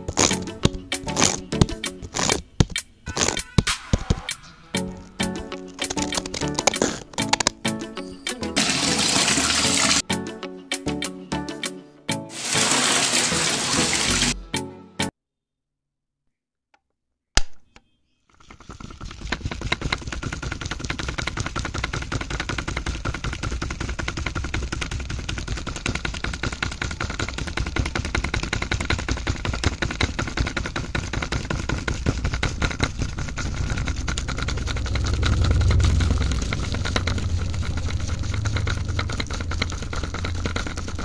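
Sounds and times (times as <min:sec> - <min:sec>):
mixer drum rattling: 0:08.5 - 0:10.0, 0:12.3 - 0:14.4, 0:18.7 - 0:41.0.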